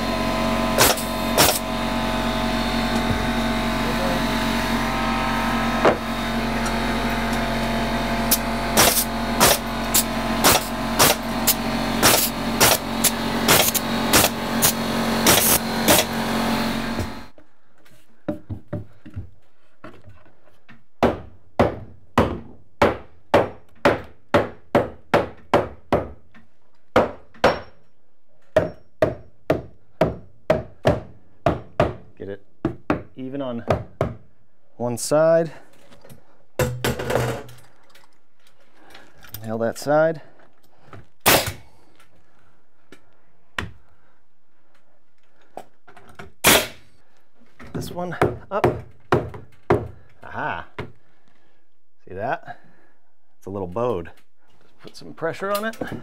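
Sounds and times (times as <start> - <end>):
steady motor hum: 0.0 - 19.1
pneumatic nailer shooting nails: 0.6 - 1.8, 8.2 - 17.3, 41.2 - 41.8, 46.2 - 47.0
hammer striking wood: 21.0 - 27.8, 28.5 - 34.3, 48.2 - 50.0.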